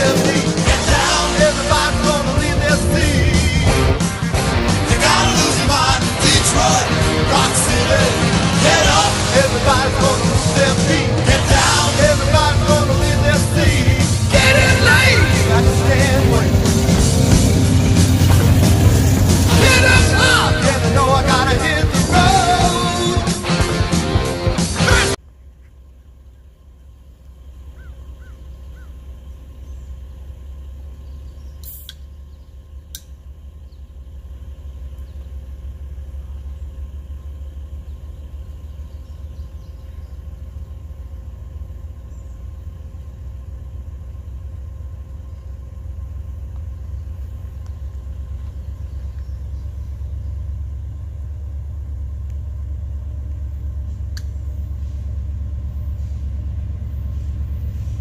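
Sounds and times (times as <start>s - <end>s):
heavy vehicle engine rumble: 0.0s - 58.0s
sharp clicks: 32.9s - 33.2s.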